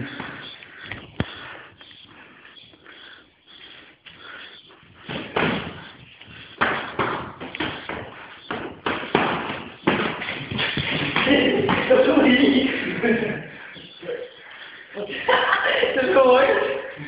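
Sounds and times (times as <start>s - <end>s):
punches and kicks thudding: 5.1s - 5.8s, 6.6s - 12.1s.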